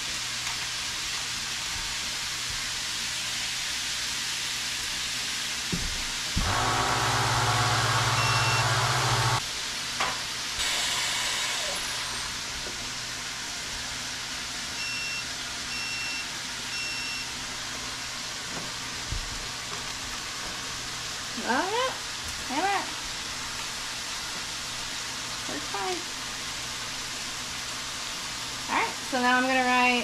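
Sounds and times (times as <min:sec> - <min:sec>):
vacuum pump humming: 0:05.7 - 0:09.4
electronic beeps: 0:08.2 - 0:08.7.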